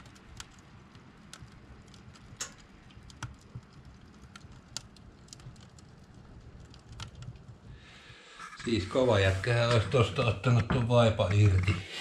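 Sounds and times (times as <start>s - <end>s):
low rumble of fire: 0.0s - 11.8s
firewood crackling and popping: 0.0s - 12.0s.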